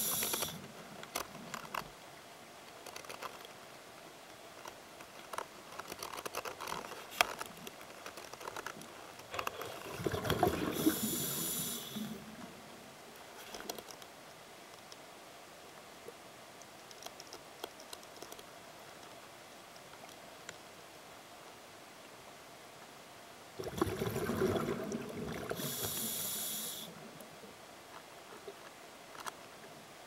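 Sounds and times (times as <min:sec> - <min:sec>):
diver breath and bubbles rushing: 0:09.6 - 0:12.2, 0:23.6 - 0:26.8.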